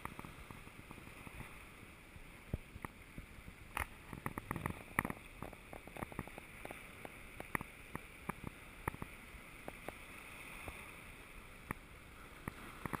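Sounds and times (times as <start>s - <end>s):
waves lapping against rocks: 0.0s - 13.0s
sharp ticks and clicks: 3.7s - 10.0s.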